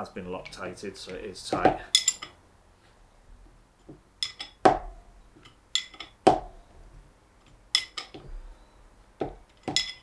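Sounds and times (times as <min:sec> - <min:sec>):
spanner clinking on metal fitting: 0:01.9 - 0:02.4, 0:04.2 - 0:04.6, 0:05.4 - 0:06.2, 0:07.7 - 0:08.2, 0:09.6 - 0:10.0.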